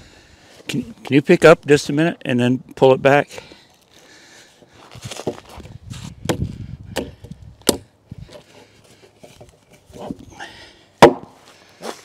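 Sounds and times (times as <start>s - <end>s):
sharp wooden knocks: 6.3s - 7.9s, 11.0s - 11.4s.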